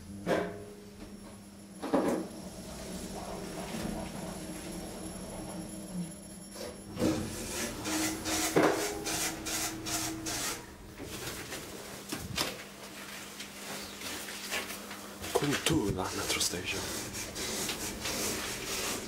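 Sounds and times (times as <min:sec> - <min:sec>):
elevator doors sliding open: 0:02.1 - 0:06.0
rough rubbing handling noise: 0:14.2 - 0:19.0.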